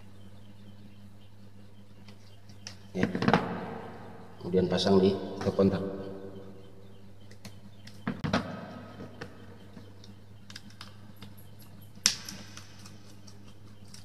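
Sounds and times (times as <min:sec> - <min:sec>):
low steady hum: 0:00.0 - 0:14.0
hands handling wires clicking: 0:10.0 - 0:14.0.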